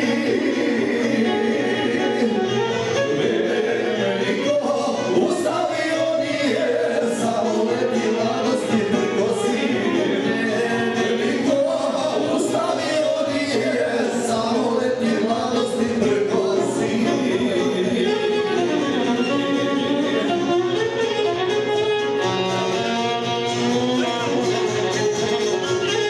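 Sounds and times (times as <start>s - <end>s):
several voices singing live: 0.0s - 18.8s.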